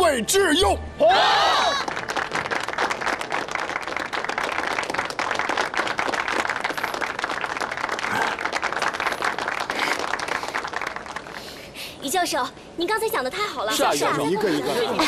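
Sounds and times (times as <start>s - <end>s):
audience applauding: 1.6s - 11.4s.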